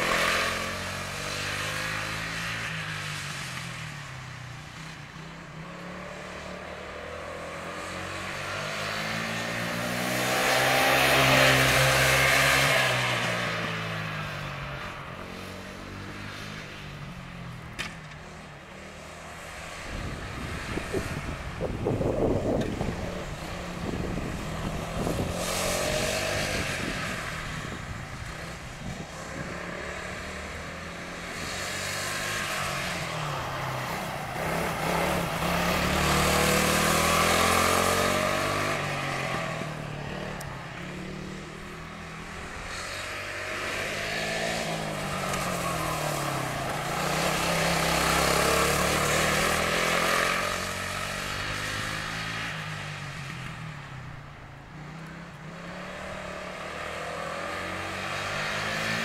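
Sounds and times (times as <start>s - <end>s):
kart engines revving: 0.0s - 4.0s, 5.3s - 17.0s, 17.6s - 54.2s, 54.8s - 59.0s
tyres hissing on wet asphalt: 42.2s - 53.3s.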